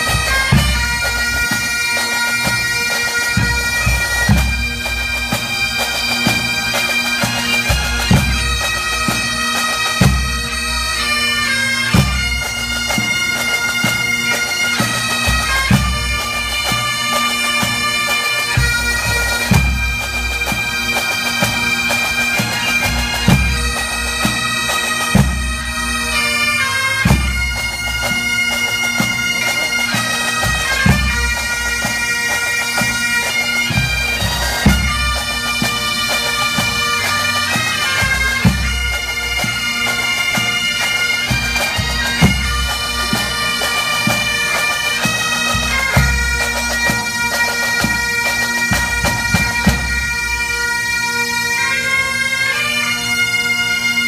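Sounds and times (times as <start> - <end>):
drums keeping a beat: 0.0 - 9.3, 18.6 - 25.8, 27.0 - 50.4
bagpipes playing melody: 0.0 - 54.0.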